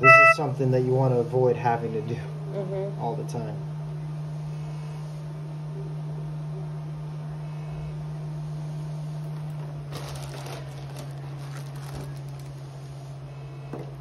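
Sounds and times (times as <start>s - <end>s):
steady low hum: 0.0s - 14.0s
plastic rustling and clicks: 9.4s - 12.6s.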